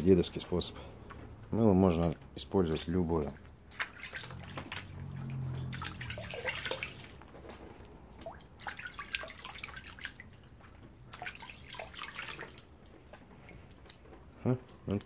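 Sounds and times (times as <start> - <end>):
hands splashing in bucket of water: 2.6 - 14.4.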